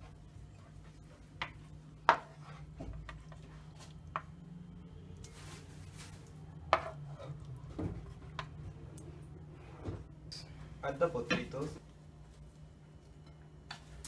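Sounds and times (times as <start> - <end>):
spoon scraping pan: 0.9 - 4.3, 6.7 - 7.4.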